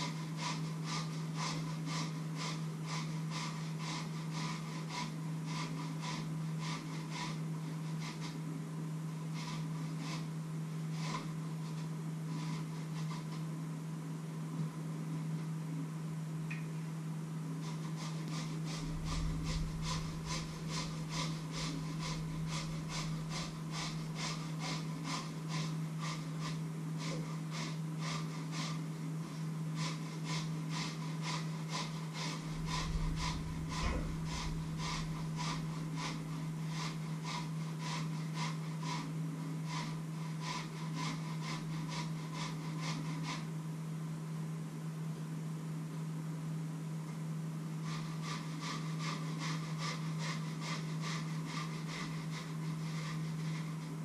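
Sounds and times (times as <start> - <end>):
steady low hum: 0.0 - 54.0
utensil scraping metal bowl: 17.7 - 28.8, 29.9 - 39.1.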